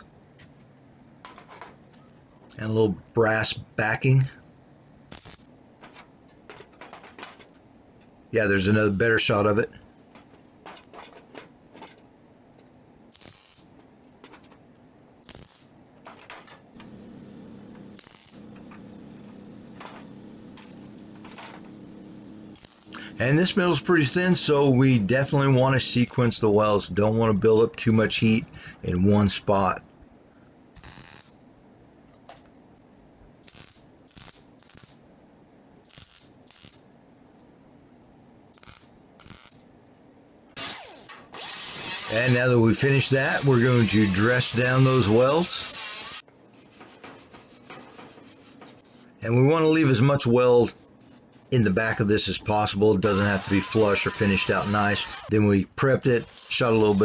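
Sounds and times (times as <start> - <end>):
steady low hum: 0.0 - 34.1
welder hissing: 5.1 - 5.5, 8.6 - 9.4, 13.1 - 13.8, 15.3 - 15.7, 16.8 - 28.8, 30.8 - 31.4, 33.4 - 35.0, 35.9 - 36.8, 38.6 - 39.6, 40.6 - 46.3, 47.4 - 49.3, 50.5 - 55.4, 56.2 - 57.0.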